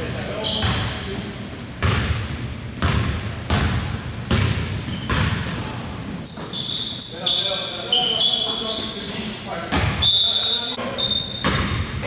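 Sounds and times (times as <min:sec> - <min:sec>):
high shoe squeak: 0:00.4 - 0:01.4, 0:04.6 - 0:11.9
basketball bouncing on gym floor: 0:00.5 - 0:01.0, 0:01.8 - 0:05.8, 0:09.7 - 0:10.1, 0:11.4 - 0:12.0.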